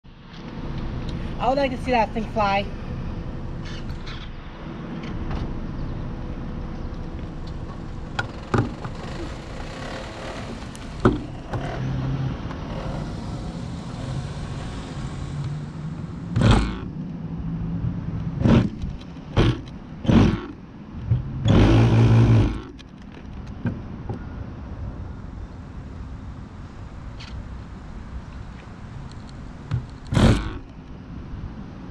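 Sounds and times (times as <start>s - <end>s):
electric starter whirring: 8.1s - 15.7s, 16.3s - 16.9s, 21.4s - 22.8s.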